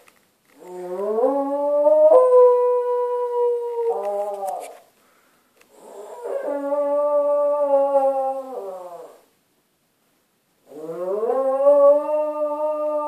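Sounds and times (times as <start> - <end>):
dog howling: 5.8 - 9.2, 10.7 - 13.0.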